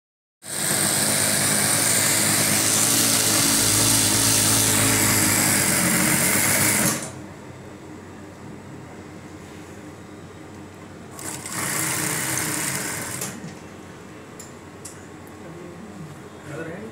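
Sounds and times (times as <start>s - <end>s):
sewing machine running: 0.5s - 7.2s, 11.1s - 13.4s
faint hum: 7.2s - 11.4s.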